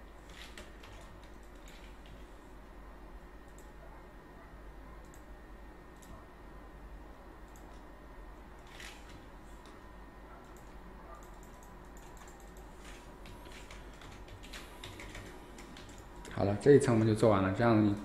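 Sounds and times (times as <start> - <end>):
low hum and faint hiss: 0.0 - 18.0
computer mouse clicks: 0.3 - 2.2, 3.4 - 3.8, 5.0 - 5.3, 6.0 - 6.2, 7.5 - 7.8, 10.4 - 16.4.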